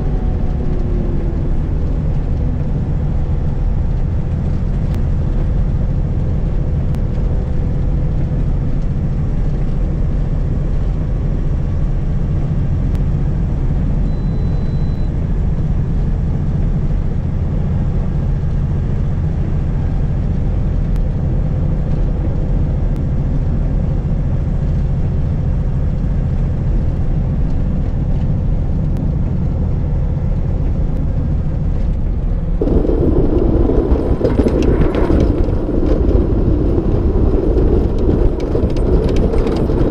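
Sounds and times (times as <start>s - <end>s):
diesel truck engine rumble: 0.0s - 39.9s
road noise: 0.0s - 39.9s
loud rough noise: 32.6s - 39.9s.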